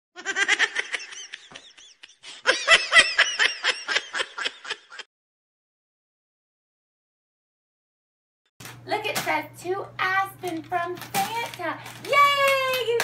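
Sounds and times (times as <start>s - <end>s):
person laughing: 0.2s - 5.1s.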